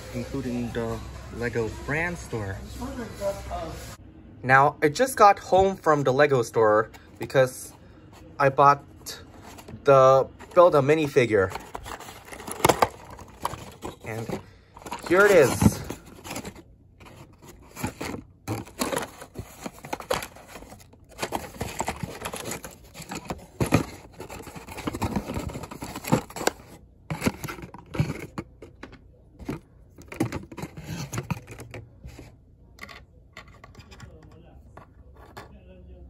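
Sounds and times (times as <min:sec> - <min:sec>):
cardboard scraping: 0:09.2 - 0:28.8, 0:29.4 - 0:32.3.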